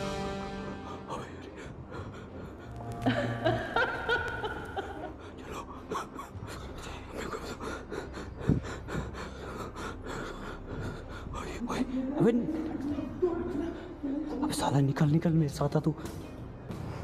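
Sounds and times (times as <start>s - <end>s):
man panting and gasping: 5.2s - 11.4s.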